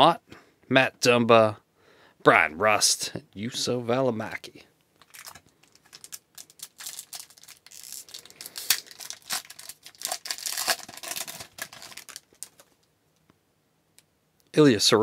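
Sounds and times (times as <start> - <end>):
cards clicking and rustling: 5.0 - 12.8
wrapper tearing and crinkling: 5.0 - 12.8.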